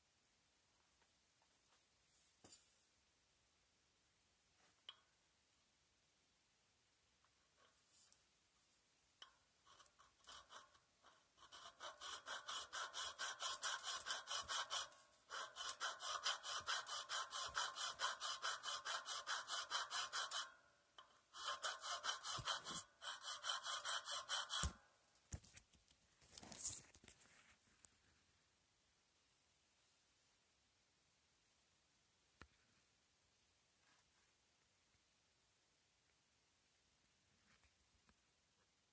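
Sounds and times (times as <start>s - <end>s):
hand file rasping on steel: 9.7s - 20.6s, 21.3s - 24.8s.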